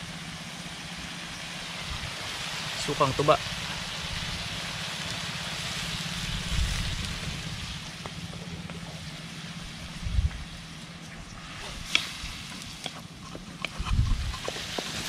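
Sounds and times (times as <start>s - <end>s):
food sizzling in a wok: 0.0s - 8.3s, 14.6s - 15.0s
dull low thumps: 9.8s - 10.5s.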